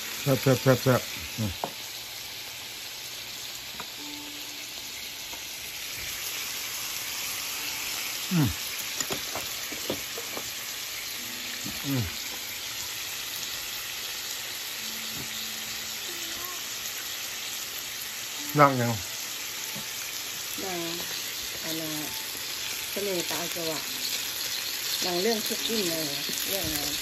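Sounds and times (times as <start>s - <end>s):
food sizzling on griddle: 0.0s - 27.0s
person making short sounds: 8.3s - 8.6s.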